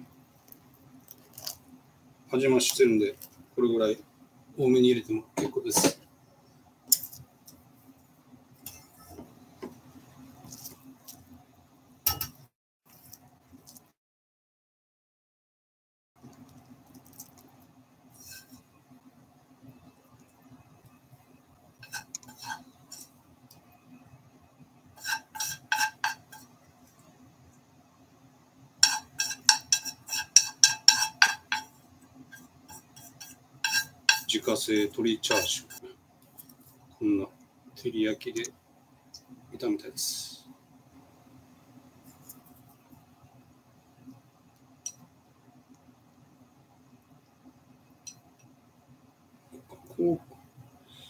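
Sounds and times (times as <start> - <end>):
chopsticks clatter: 21.8 - 23.1, 25.0 - 26.5, 28.8 - 31.7, 32.4 - 34.4
chopsticks tapping ceramic bowl: 28.8 - 31.7.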